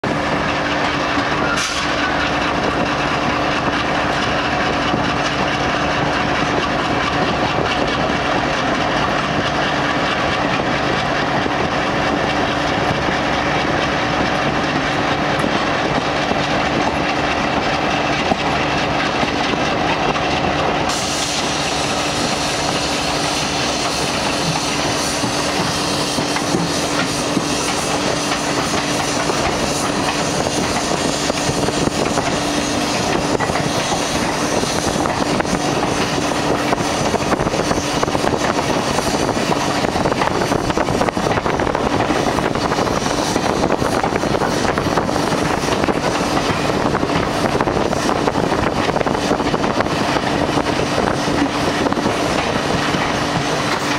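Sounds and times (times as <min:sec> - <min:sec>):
train wheels clattering on track: 0:00.0 - 0:53.9
hiss: 0:20.9 - 0:39.8.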